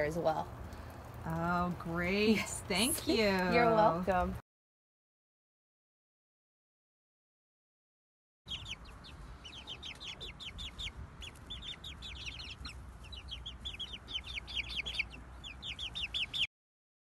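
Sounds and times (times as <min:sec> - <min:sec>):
chicks peeping: 0:08.5 - 0:16.5.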